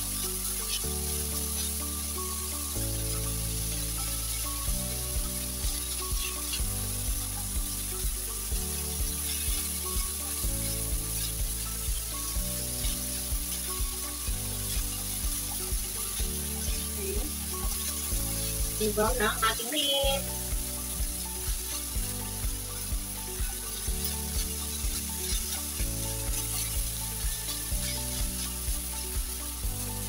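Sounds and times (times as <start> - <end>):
background music with steady beat: 0.0 - 30.0
pork sizzling in a wok: 0.0 - 30.0.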